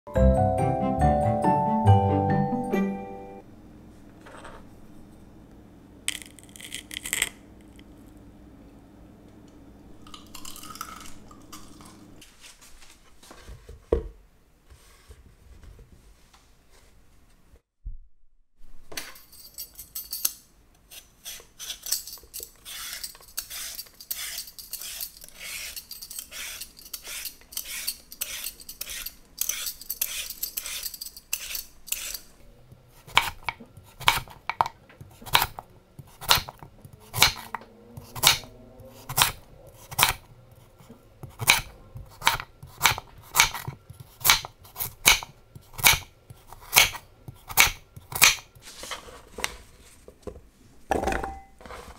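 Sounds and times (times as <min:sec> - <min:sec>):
peeler scraping sweet potato: 0:20.9 - 0:32.3, 0:32.9 - 0:48.4
knife chopping on wooden board: 0:33.1 - 0:34.4, 0:41.2 - 0:48.4.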